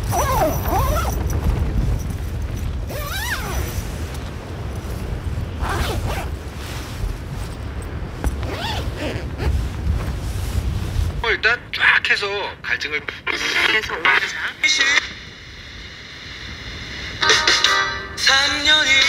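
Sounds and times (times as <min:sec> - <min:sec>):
tent zipper rasping: 0:00.0 - 0:04.2, 0:04.8 - 0:07.5, 0:08.2 - 0:10.8
wind buffeting tent: 0:00.0 - 0:17.2.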